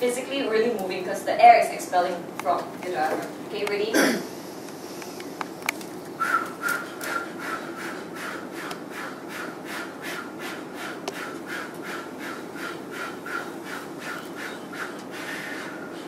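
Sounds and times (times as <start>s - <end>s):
forceful breath puffs: 6.2s - 16.0s.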